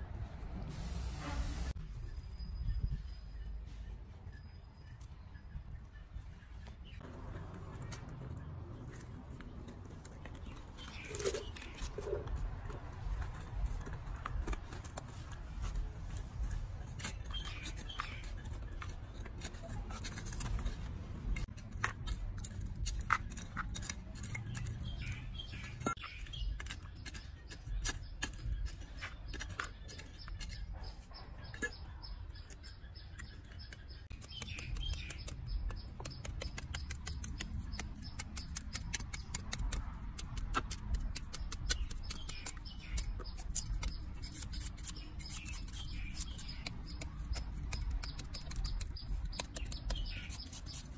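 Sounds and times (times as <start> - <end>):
hands working in potting soil: 6.6 - 50.9
birds chirping: 16.4 - 20.0, 24.2 - 50.9
knife paring sweet potato peel: 32.6 - 50.9.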